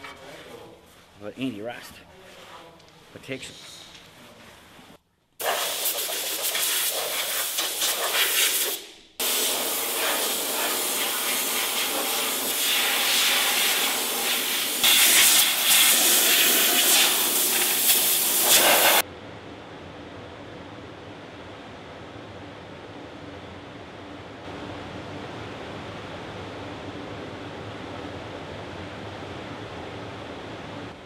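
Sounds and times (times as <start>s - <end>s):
compressed air blow guns hissing: 5.4s - 19.0s.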